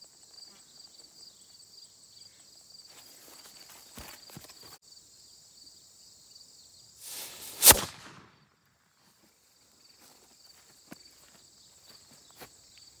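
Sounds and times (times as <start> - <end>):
insects buzzing: 0.0 - 8.3, 9.5 - 13.0
fuse hissing: 7.0 - 8.2
cannon bang: 7.6 - 8.4.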